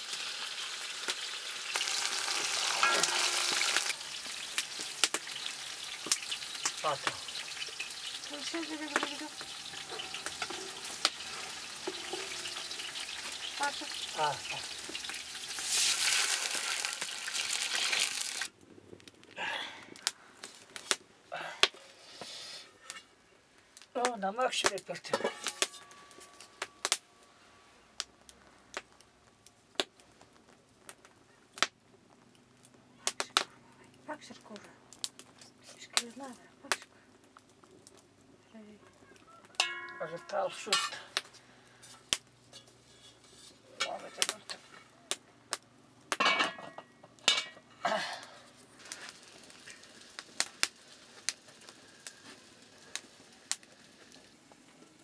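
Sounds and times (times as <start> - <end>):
wood fire crackling: 0.0 - 55.0
pot clicks and clinks: 2.6 - 3.9, 9.0 - 13.7, 25.1 - 26.9, 39.6 - 41.2.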